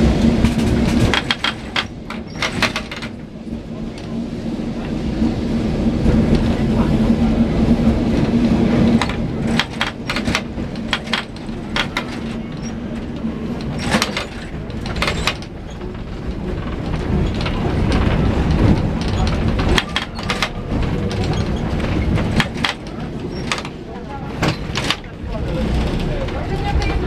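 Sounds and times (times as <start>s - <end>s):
tram rumbling on rails: 0.0s - 27.0s
sharp clacks and knocks: 0.2s - 3.2s, 8.8s - 23.8s, 24.4s - 27.0s.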